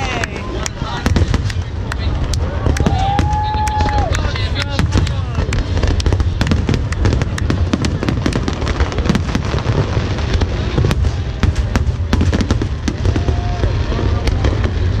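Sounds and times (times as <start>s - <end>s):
firework bangs and crackles: 0.0s - 15.0s
low rumble: 0.0s - 15.0s.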